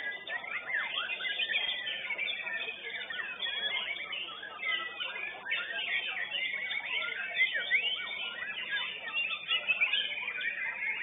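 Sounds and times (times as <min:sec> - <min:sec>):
other songbirds singing: 0:00.0 - 0:11.0
songbird singing varied whistles: 0:00.0 - 0:11.0.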